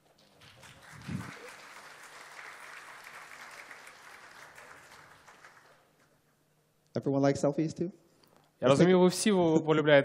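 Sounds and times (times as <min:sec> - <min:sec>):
audience applauding: 0:00.0 - 0:06.2.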